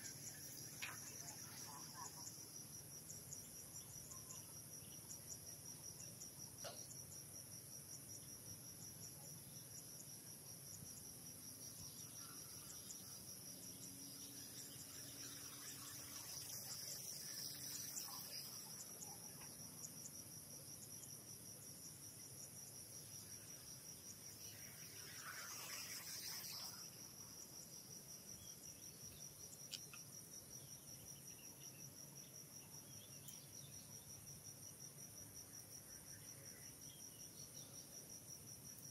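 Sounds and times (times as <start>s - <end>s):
insects chirping: 0.0s - 38.9s
faint noise swells: 23.8s - 27.8s.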